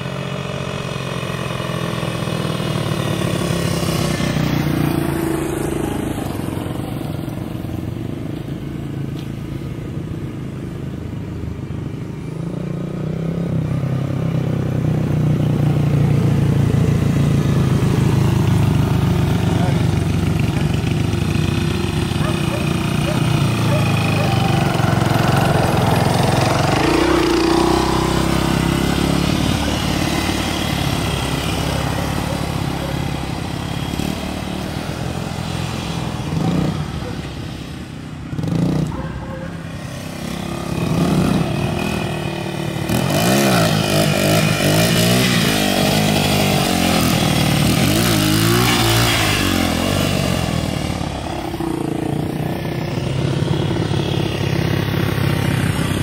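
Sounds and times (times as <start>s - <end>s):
dirt bike engine revving: 16.4s - 37.0s, 39.8s - 56.0s.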